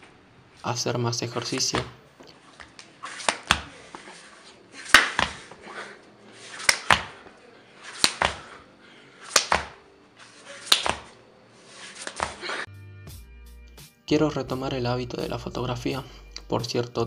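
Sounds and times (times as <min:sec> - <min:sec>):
body whooshing and slapping floor: 0:02.6 - 0:05.6, 0:06.5 - 0:07.2, 0:07.9 - 0:08.5, 0:09.3 - 0:09.8, 0:10.6 - 0:11.2, 0:11.8 - 0:12.6.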